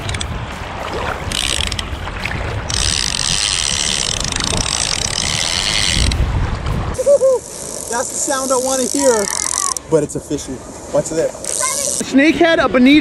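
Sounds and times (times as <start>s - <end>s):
wind: 0.0s - 13.0s
fishing reel clicker buzzing: 1.3s - 1.9s, 2.6s - 6.2s, 7.4s - 9.9s, 11.4s - 12.1s
surf rumble: 5.9s - 13.0s.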